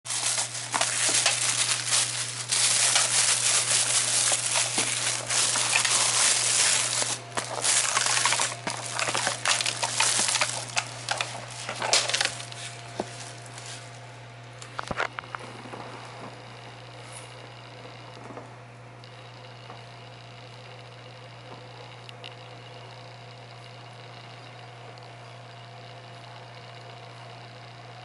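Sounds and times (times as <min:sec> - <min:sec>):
plastic bag crinkling: 0:00.0 - 0:14.0
steady low hum: 0:00.1 - 0:28.0.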